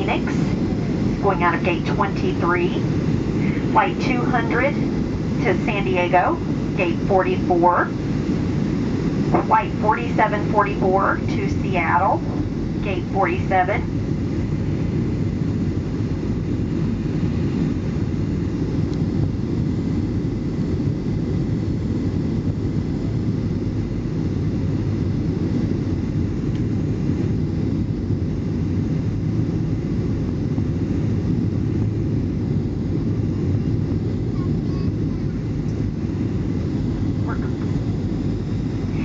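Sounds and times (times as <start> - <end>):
airliner cabin engine rush: 0.0 - 39.0.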